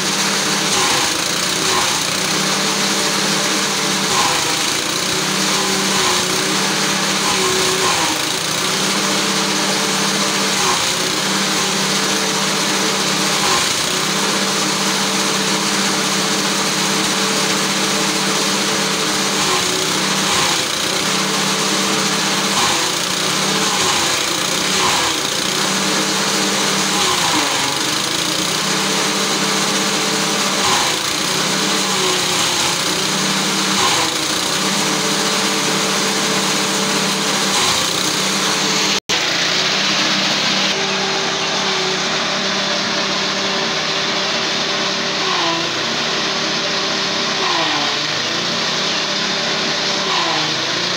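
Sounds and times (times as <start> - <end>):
small engine running: 0.0 - 50.9
stalks crackling as cut: 0.7 - 2.4, 19.4 - 21.4, 22.0 - 28.7, 30.5 - 34.8, 37.0 - 39.2.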